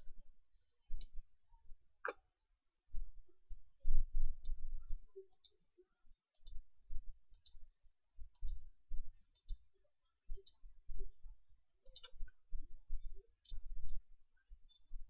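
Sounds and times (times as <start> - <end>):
computer mouse clicks: 7.3 - 7.6, 9.3 - 9.6, 11.8 - 12.3.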